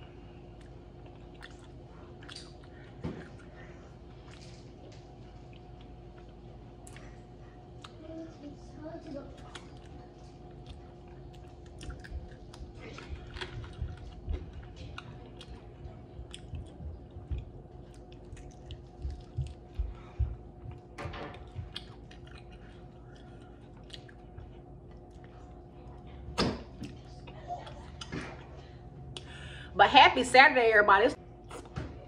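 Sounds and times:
faint steady hum: 0:00.0 - 0:32.0
chewing and biting chicken: 0:00.4 - 0:08.2, 0:09.2 - 0:26.2, 0:31.4 - 0:31.8.

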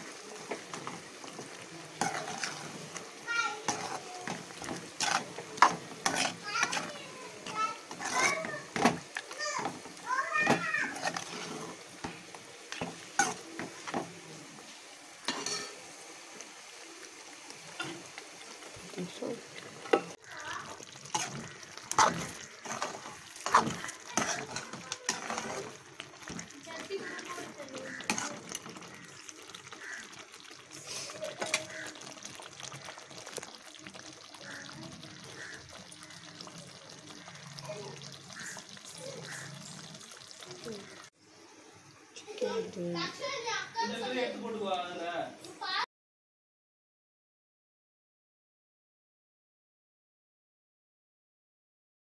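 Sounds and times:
gravy bubbling and popping: 0:00.0 - 0:14.4, 0:16.4 - 0:41.2
low sizzle: 0:00.0 - 0:45.8
metal spoon scraping a pan: 0:00.5 - 0:14.1, 0:15.3 - 0:15.8, 0:17.8 - 0:18.1, 0:21.0 - 0:30.2, 0:30.8 - 0:32.1.

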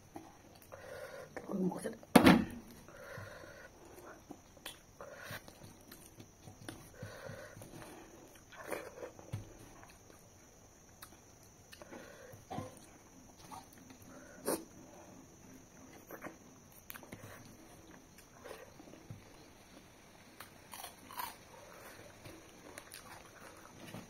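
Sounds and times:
chewing and mouth noises: 0:20.4 - 0:24.0.

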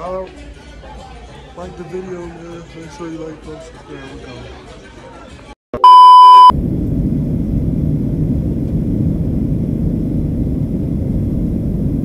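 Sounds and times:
airliner cabin rumble: 0:06.5 - 0:12.0.

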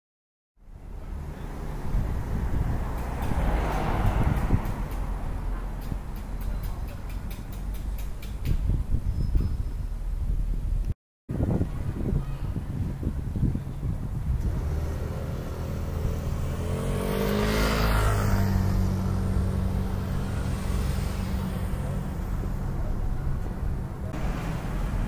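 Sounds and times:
traffic engine hum: 0:00.6 - 0:25.0
vehicle passing close: 0:01.1 - 0:06.0, 0:14.3 - 0:25.0.

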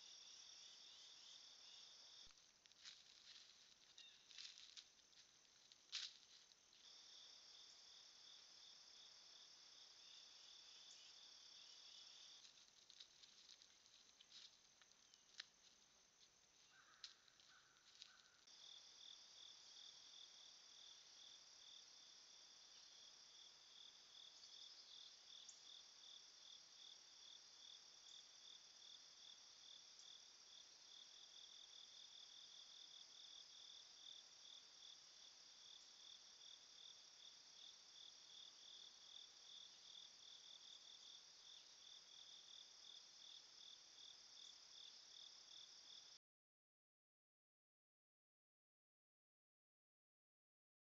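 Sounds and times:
insects chirping: 0:00.0 - 0:46.2.

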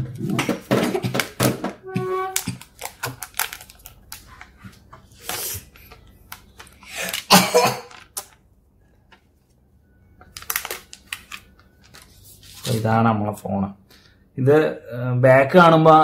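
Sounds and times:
smartphone handling clicks and rustles: 0:02.4 - 0:07.3, 0:10.2 - 0:12.2.

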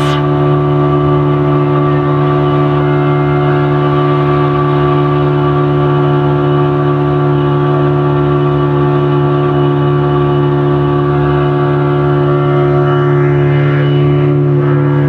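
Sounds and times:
motorboat engine droning: 0:00.0 - 0:15.0.

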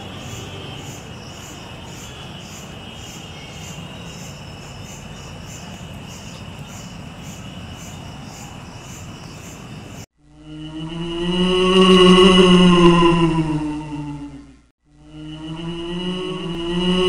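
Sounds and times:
crickets chirping: 0:00.0 - 0:10.1
insect trill: 0:00.0 - 0:10.7.

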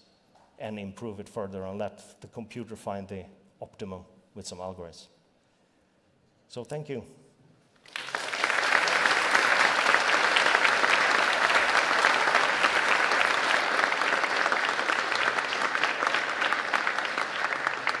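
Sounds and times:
audience applauding: 0:07.8 - 0:18.0.

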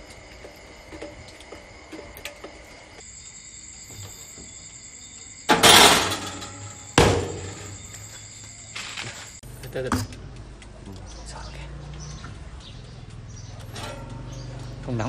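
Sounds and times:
metal rattling against oven rack: 0:05.5 - 0:07.8, 0:13.6 - 0:15.0.

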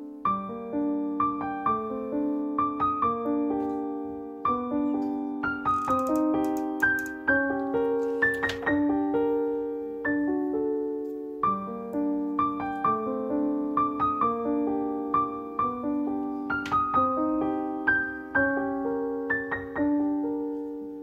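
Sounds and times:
calm piano music: 0:00.0 - 0:21.0.

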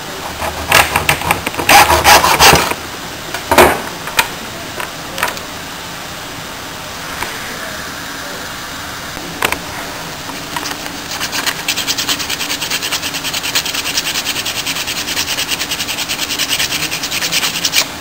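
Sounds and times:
sandpaper scratching wood: 0:00.4 - 0:02.7, 0:10.4 - 0:17.9.

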